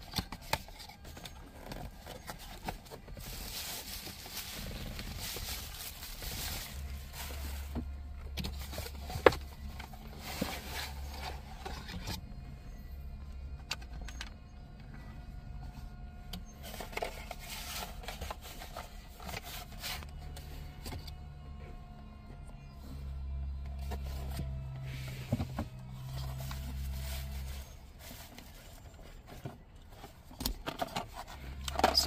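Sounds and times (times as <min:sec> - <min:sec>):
paper and plastic rustling: 0:00.0 - 0:12.4, 0:16.0 - 0:21.0, 0:23.7 - 0:32.0.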